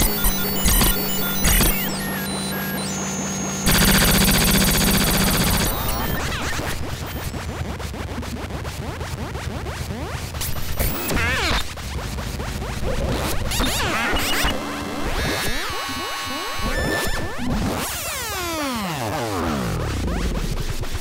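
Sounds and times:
warbling chirp: 0.0 - 7.2
low hum: 0.0 - 7.9
buzzing synthesizer tones: 0.0 - 20.6
rapid clicks with sliding pitches: 3.6 - 7.4.

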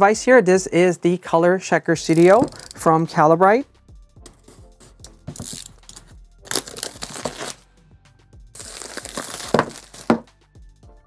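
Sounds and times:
plastic packaging crinkling: 2.1 - 2.8, 5.4 - 7.6, 8.6 - 10.3.

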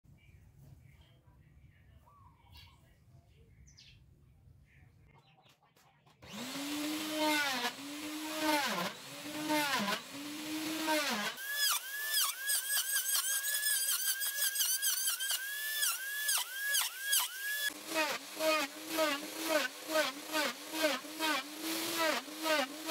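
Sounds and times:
electric router motor whine: 6.2 - 22.9
router bit cutting wood hiss: 6.3 - 22.9.

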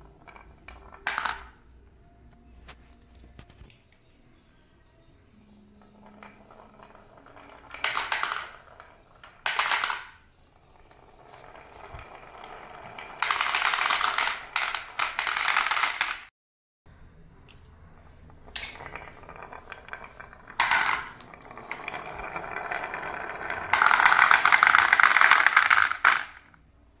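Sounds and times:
marbles clattering into plastic: 0.0 - 1.8, 5.8 - 16.3, 18.4 - 26.7
marbles rolling on wooden track: 0.0 - 2.0, 5.5 - 16.3, 18.2 - 26.7.

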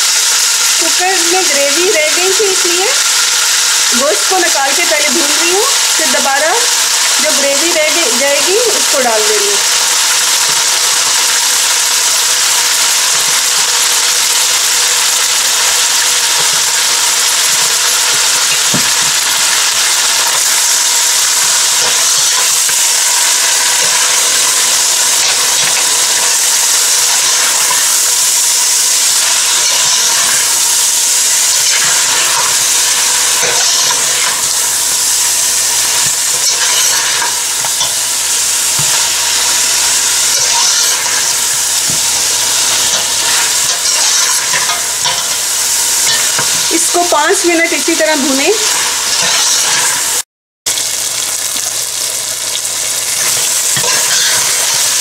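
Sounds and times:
meat sizzling in hot oil: 0.0 - 55.0
metal ladle scraping a pot: 29.1 - 30.6, 31.5 - 34.5, 35.8 - 38.0, 38.8 - 45.4, 48.6 - 50.1, 53.8 - 54.8.

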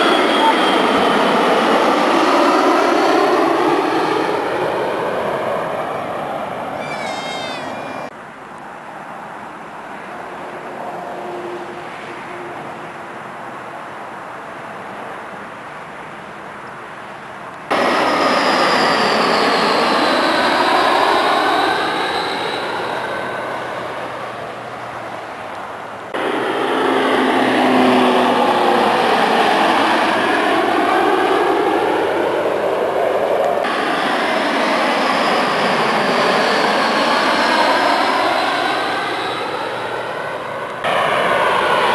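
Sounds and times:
jet engines whining: 0.0 - 8.1, 17.7 - 41.9
turboprop engines droning: 0.0 - 8.1, 17.7 - 41.9
faint distant rush: 0.0 - 13.5, 16.2 - 41.9.

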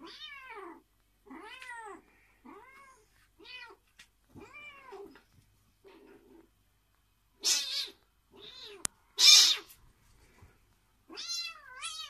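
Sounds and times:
cat meowing angrily: 7.4 - 9.7.

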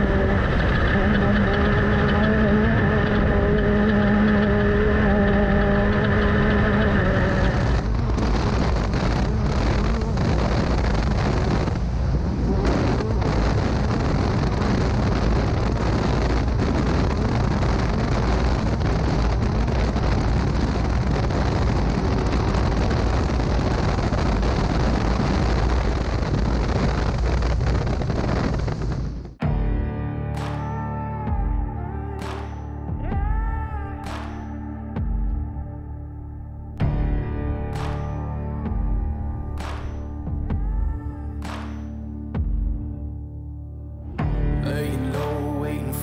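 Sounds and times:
race car engine: 0.0 - 23.6
wind buffeting microphone: 0.0 - 29.4.

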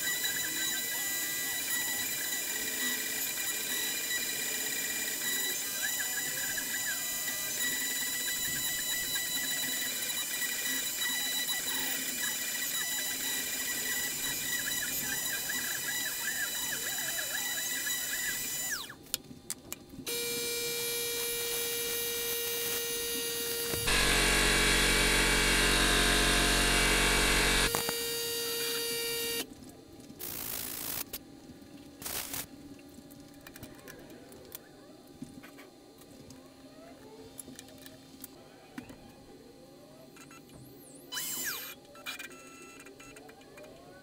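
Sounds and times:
router spindle motor whining: 0.1 - 18.9, 20.1 - 29.4
bit milling plywood: 20.1 - 29.4.

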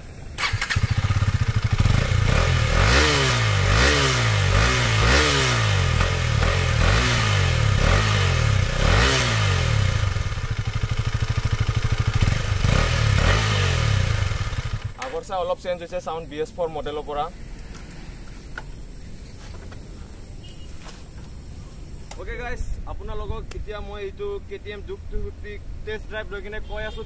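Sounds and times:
motorcycle engine idling and revving: 0.0 - 15.2.

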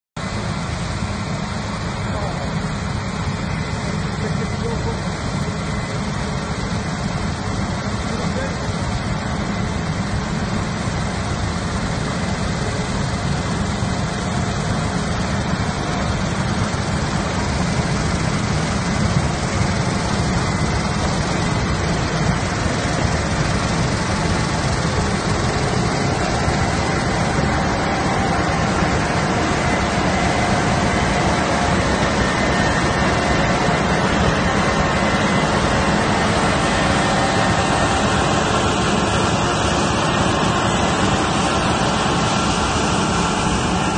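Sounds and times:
combine harvester engine drone: 0.2 - 43.9.

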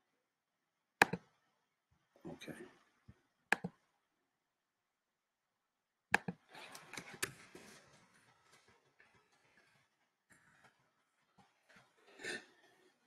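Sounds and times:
soft rustling and clicking: 6.5 - 12.0.

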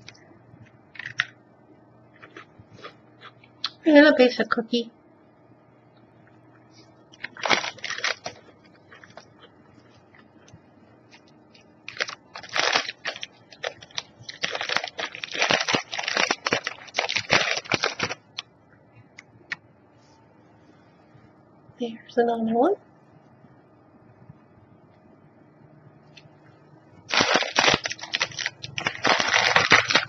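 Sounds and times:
snack packaging crinkling: 0.9 - 1.4, 2.1 - 3.8, 7.1 - 18.5, 27.0 - 30.0.

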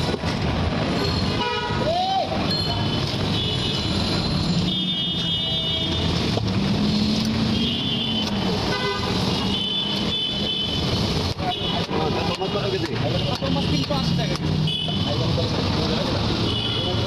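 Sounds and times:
vehicle engines running: 0.0 - 1.4, 2.2 - 17.0
car horns tooting: 1.1 - 6.4, 7.5 - 13.6, 16.4 - 17.0.

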